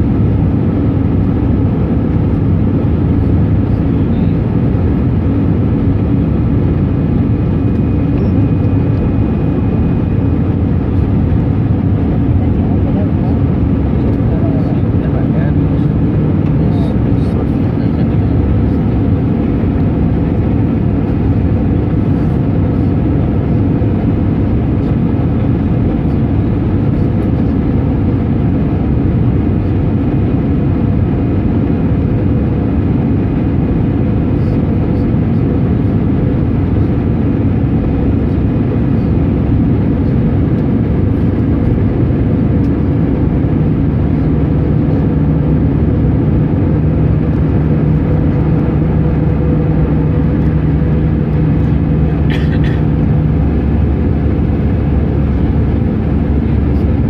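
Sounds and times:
jet engines droning: 0:00.0 - 0:57.0.

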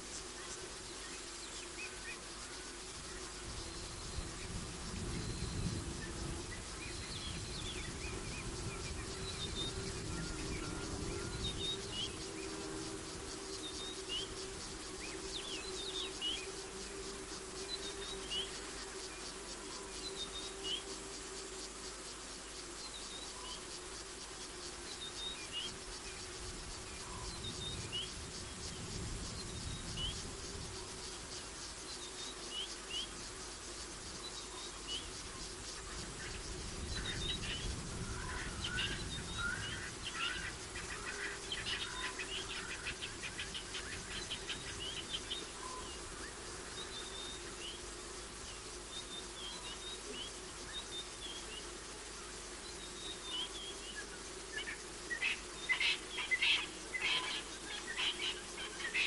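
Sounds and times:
crickets chirring: 0:00.0 - 0:59.0.

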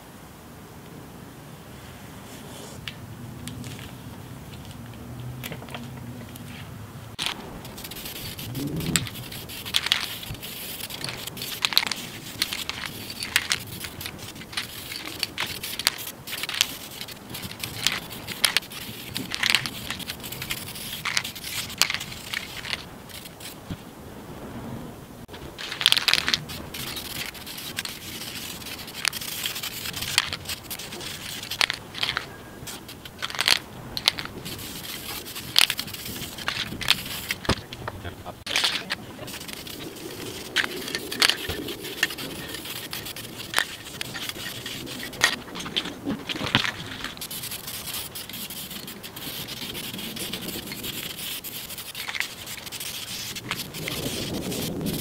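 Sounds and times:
aerosol can spraying: 0:07.2 - 0:23.6, 0:26.0 - 0:37.6, 0:39.3 - 0:45.4, 0:46.6 - 0:55.0.

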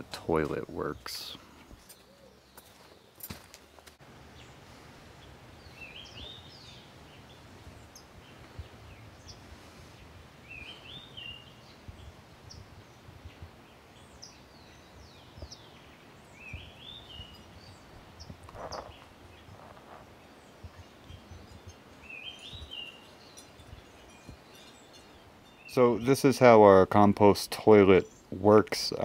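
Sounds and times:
songbird singing: 0:00.0 - 0:29.0
faint bird chirps: 0:04.3 - 0:26.1.

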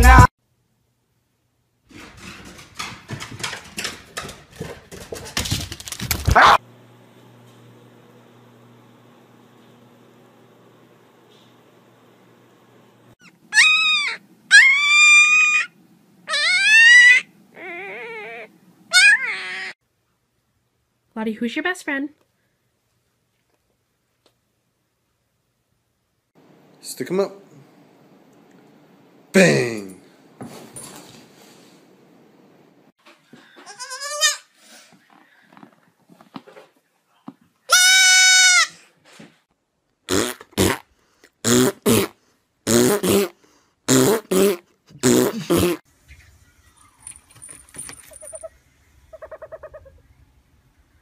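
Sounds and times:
puppy howling: 0:06.3 - 0:06.6, 0:13.2 - 0:19.8
goat kid bleating: 0:33.6 - 0:34.5, 0:37.7 - 0:38.7.

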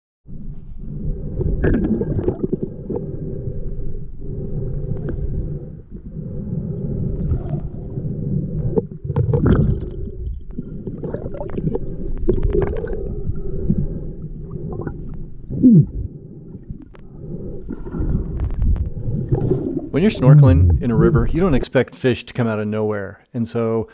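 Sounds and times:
underwater river rumble: 0:00.3 - 0:21.5
downward gliding gurgle: 0:00.8 - 0:03.6, 0:04.3 - 0:21.6
water gurgles: 0:01.0 - 0:03.5, 0:05.0 - 0:21.6.

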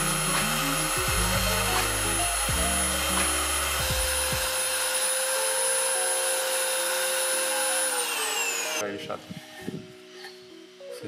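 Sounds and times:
belt sander sanding wood: 0:00.0 - 0:08.8.

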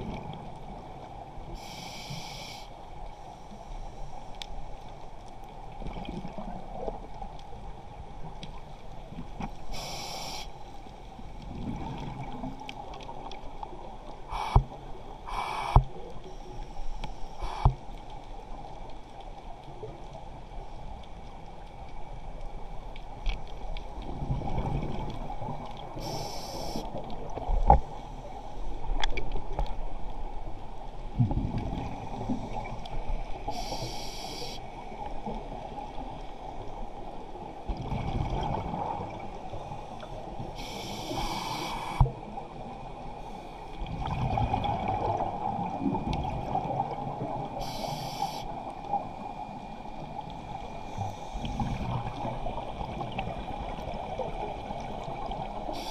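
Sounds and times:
regulator hissing inhalation: 0:01.6 - 0:02.7, 0:09.7 - 0:10.6, 0:15.3 - 0:15.8, 0:26.0 - 0:26.9, 0:33.5 - 0:34.6, 0:40.6 - 0:42.0, 0:47.6 - 0:48.5.

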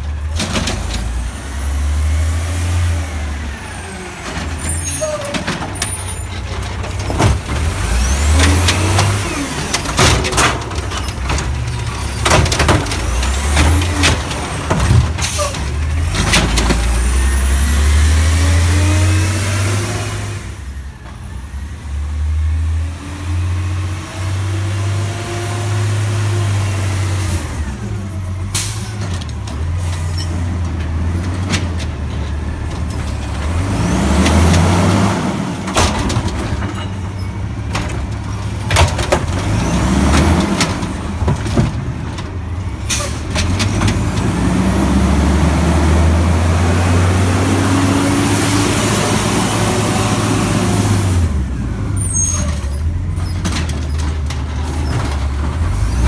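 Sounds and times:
garbage truck engine revving: 0:00.0 - 0:56.0.

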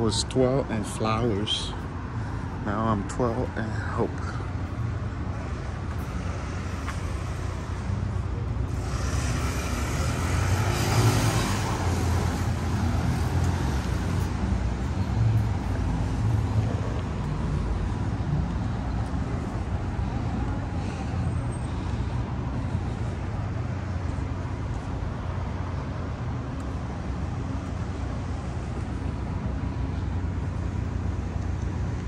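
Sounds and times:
rumble of street traffic: 0:00.0 - 0:32.0
vehicle passing: 0:05.4 - 0:21.8.

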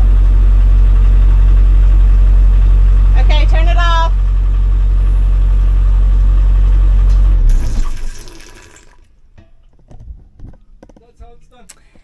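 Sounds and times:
diesel engine running: 0:00.0 - 0:08.2.

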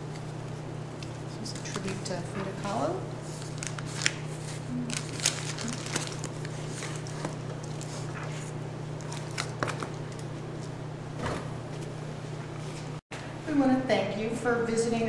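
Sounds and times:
paper pages rustling: 0:03.2 - 0:10.0.

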